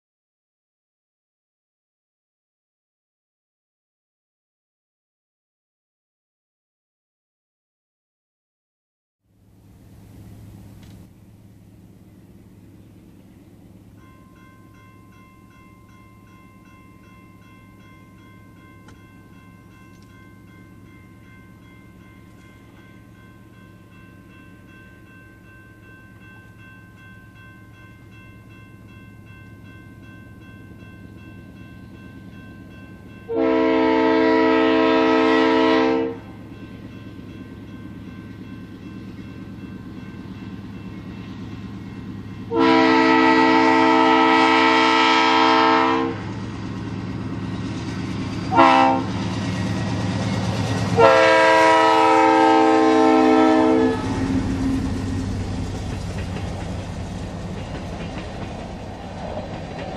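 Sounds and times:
train rumble: 0:09.3 - 0:59.9
locomotive air horn blasts: 0:33.3 - 0:36.4, 0:42.5 - 0:46.3, 0:48.5 - 0:49.3, 0:51.0 - 0:54.8.

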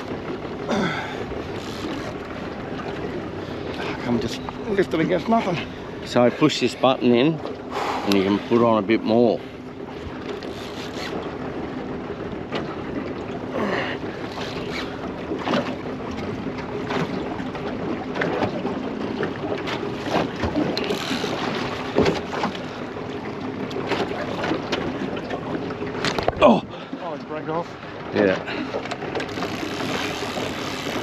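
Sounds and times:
outboard motor humming: 0:00.0 - 0:31.0
water slapping against hull: 0:00.0 - 0:31.0
short knocks and splashes: 0:12.4 - 0:31.0.

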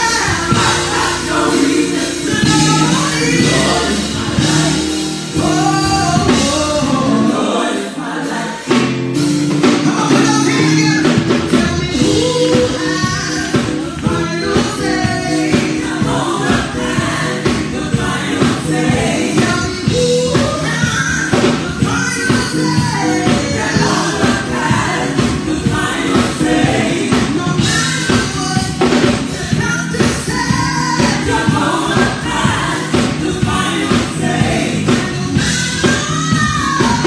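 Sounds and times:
steady beat: 0:00.0 - 0:07.6, 0:21.3 - 0:29.8
women singing in harmony: 0:00.0 - 0:08.9, 0:09.8 - 0:37.0
gospel band accompaniment: 0:00.0 - 0:37.0.

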